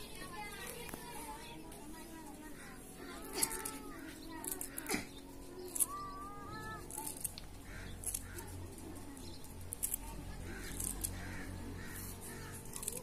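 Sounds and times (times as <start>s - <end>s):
crows cawing: 7.6s - 8.8s, 10.4s - 13.0s.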